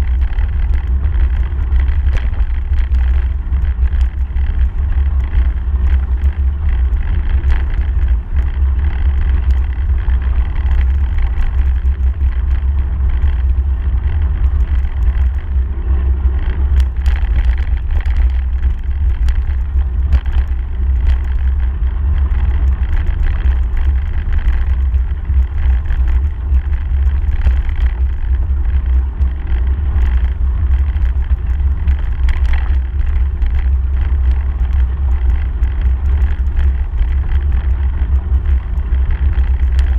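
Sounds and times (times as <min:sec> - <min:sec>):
wind rumble on microphone: 0:00.0 - 0:39.9
small clicks: 0:16.4 - 0:21.6, 0:22.2 - 0:39.9.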